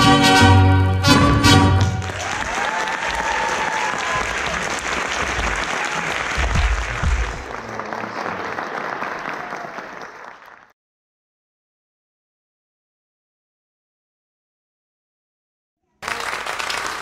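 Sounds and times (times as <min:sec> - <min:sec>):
audience applauding and cheering: 0:01.0 - 0:10.8, 0:16.0 - 0:17.0.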